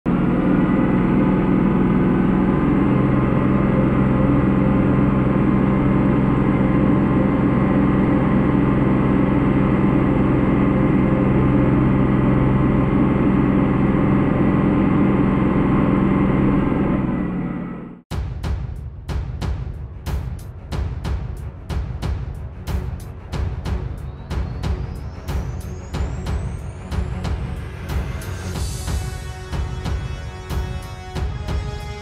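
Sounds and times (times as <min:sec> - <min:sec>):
tractor engine under load: 0:00.1 - 0:18.0.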